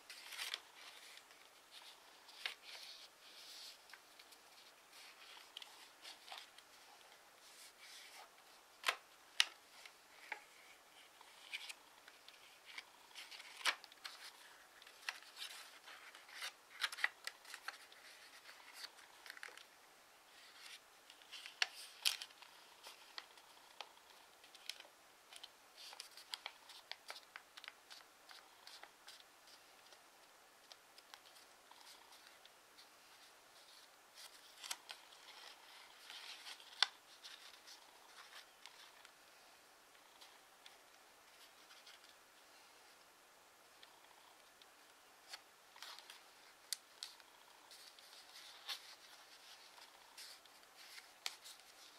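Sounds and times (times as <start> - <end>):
paper being folded and creased: 0.0 - 19.7, 20.3 - 30.0, 30.6 - 39.1, 40.2 - 42.2, 45.2 - 51.9.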